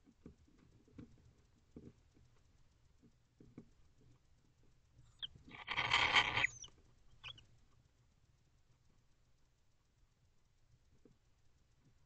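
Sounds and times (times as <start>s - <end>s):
owl rasping hiss: 5.2s - 7.4s.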